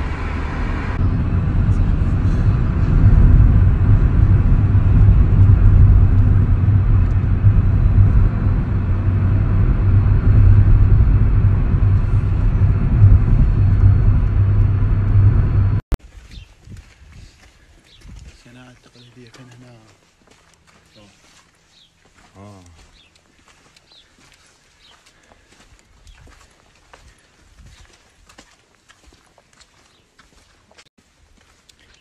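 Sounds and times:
car engine and tyre noise: 0.0 - 15.9.

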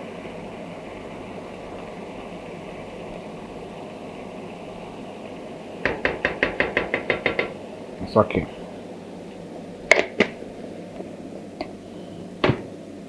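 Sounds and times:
stew simmering in a pan: 0.0 - 13.0
plastic spoon knocking against pan: 5.8 - 7.6.

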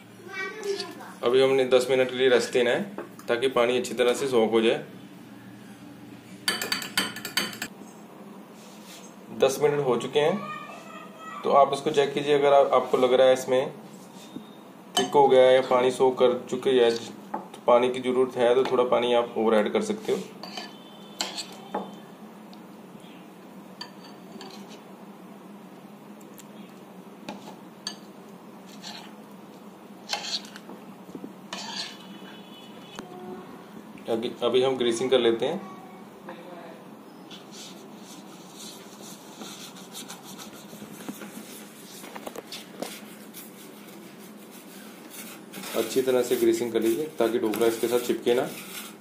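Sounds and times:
spoon stirring thick batter: 20.0 - 22.0, 27.2 - 29.4, 30.0 - 33.0, 37.3 - 49.0
brush scraping bowl: 28.6 - 29.2, 30.0 - 30.6, 31.5 - 32.7, 37.3 - 49.0.

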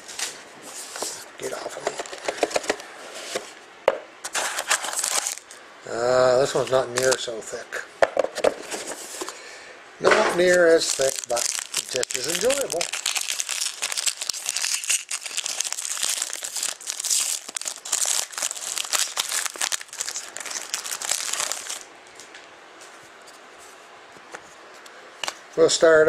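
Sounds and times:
foil wrapper crinkling: 4.4 - 5.6, 10.4 - 21.9.

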